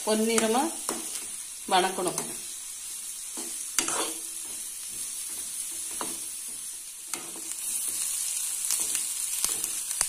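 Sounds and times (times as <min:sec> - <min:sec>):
food sizzling in oil: 0:00.0 - 0:10.0
ladle scraping pan: 0:03.4 - 0:04.2.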